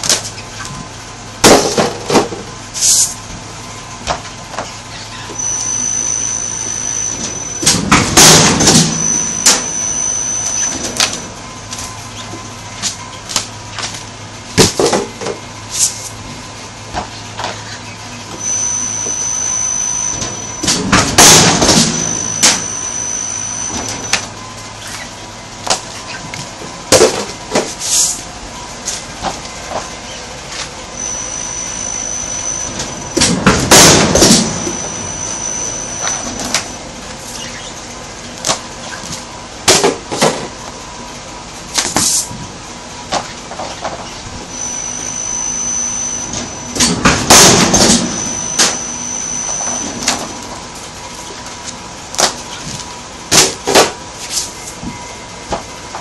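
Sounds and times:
thin high whine: 0:05.1 - 0:13.2, 0:17.7 - 0:25.2, 0:30.1 - 0:37.7, 0:44.1 - 0:51.7.

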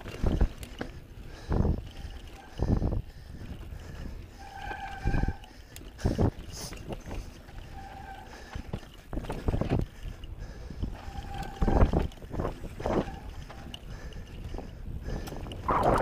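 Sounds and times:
bike rattling: 0:00.0 - 0:16.0
bike tyres rolling on dirt: 0:00.0 - 0:16.0
short high squeals: 0:04.4 - 0:05.6, 0:07.6 - 0:08.5, 0:11.0 - 0:12.0.

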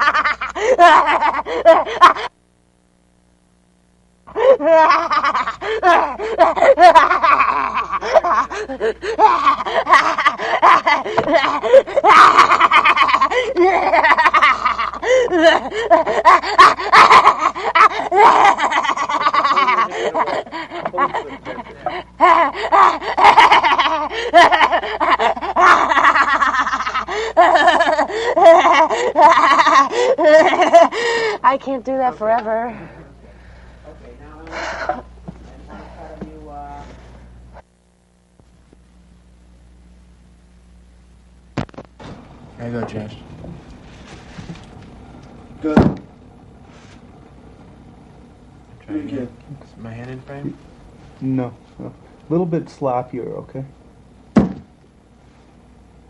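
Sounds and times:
woman cackling laugh: 0:00.0 - 0:02.3, 0:04.4 - 0:21.3, 0:22.2 - 0:31.0.

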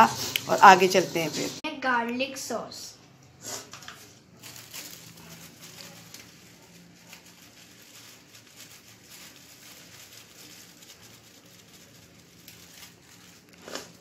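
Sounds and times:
plastic bag rustling: 0:03.7 - 0:14.0.

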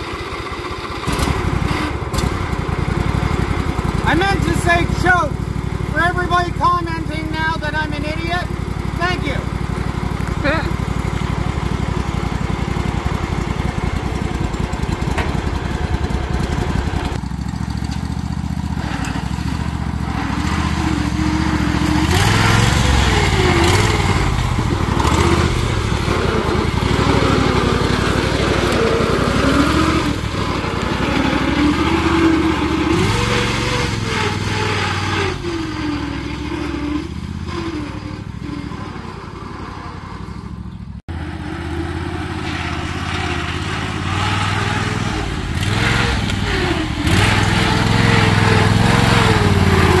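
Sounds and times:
small engine running: 0:00.0 - 0:50.0.

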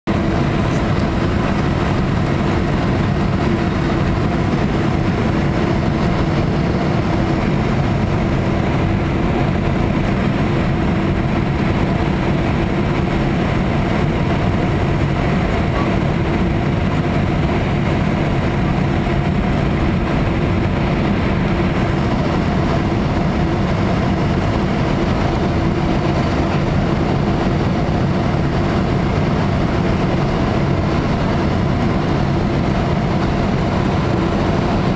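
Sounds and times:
airflow rushing: 0:00.1 - 0:34.9
jet engines droning: 0:00.1 - 0:34.9
steady low hum: 0:00.1 - 0:34.9.

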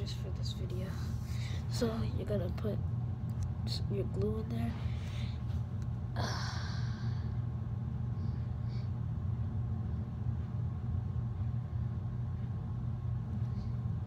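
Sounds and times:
low background hum: 0:00.0 - 0:14.0
breathy sigh: 0:06.2 - 0:07.4.

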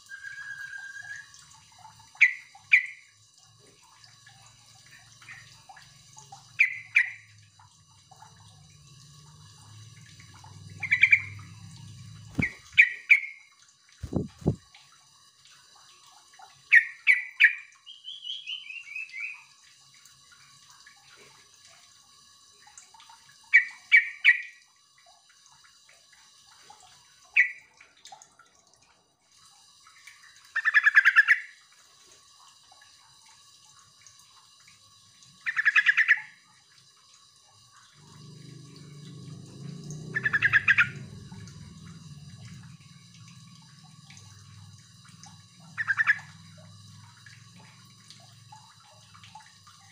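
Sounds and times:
low hum: 0:08.2 - 0:12.8, 0:37.8 - 0:49.8
bulbul calling: 0:12.3 - 0:13.4, 0:45.8 - 0:46.3.

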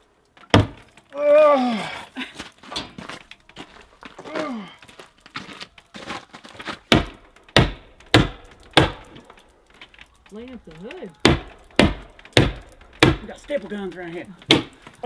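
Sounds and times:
hammer stapler strikes: 0:06.9 - 0:09.2, 0:11.2 - 0:13.3.

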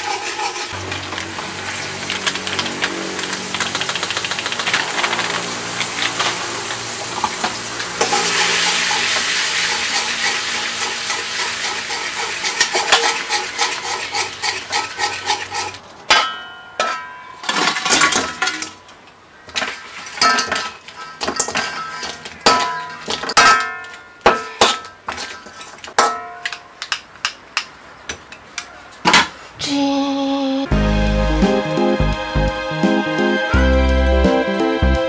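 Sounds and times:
metal spatula scraping a wok: 0:00.0 - 0:03.5, 0:06.0 - 0:15.8, 0:19.7 - 0:23.4, 0:25.1 - 0:25.8
glaze sizzling in a wok: 0:00.0 - 0:15.4.

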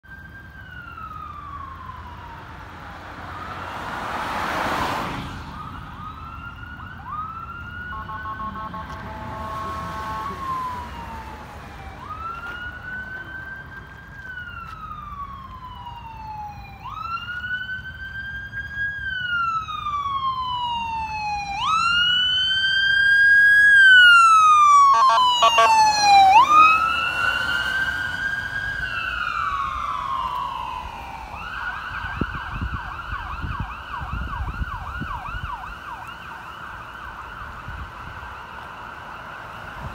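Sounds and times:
ambulance siren wailing: 0:00.0 - 0:39.9
short horn honks: 0:07.9 - 0:10.4, 0:24.9 - 0:25.8.

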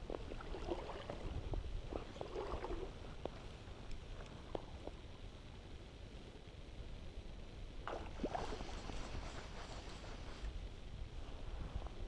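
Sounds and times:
wind on microphone: 0:00.0 - 0:04.6.

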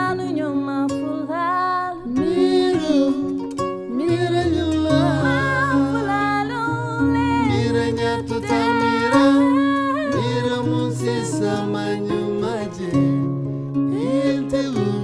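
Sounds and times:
harp-lute plucked: 0:00.0 - 0:15.0
person singing: 0:00.0 - 0:15.0.

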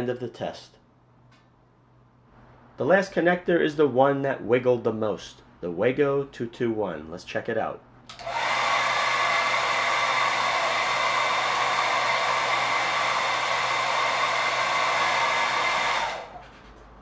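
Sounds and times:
electric appliance rushing hum: 0:08.1 - 0:17.0.

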